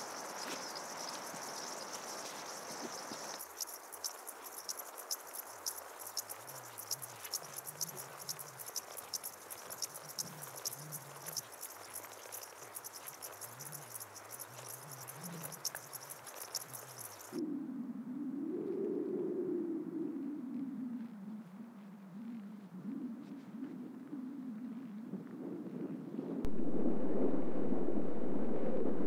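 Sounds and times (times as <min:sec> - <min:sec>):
faint outdoor hiss: 0:00.0 - 0:18.6
insects chirping: 0:00.0 - 0:23.2.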